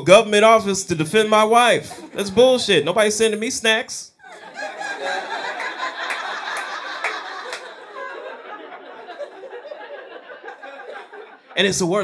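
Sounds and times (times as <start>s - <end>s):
audience laughing: 4.2s - 12.0s.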